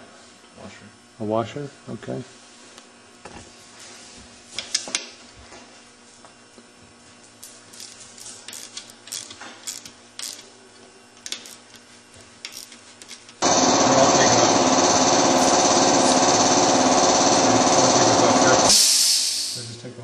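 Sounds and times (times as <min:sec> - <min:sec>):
ratchet metallic clicks: 0:07.7 - 0:10.5, 0:11.2 - 0:11.8, 0:12.4 - 0:13.4
loud motor buzz: 0:13.4 - 0:18.8.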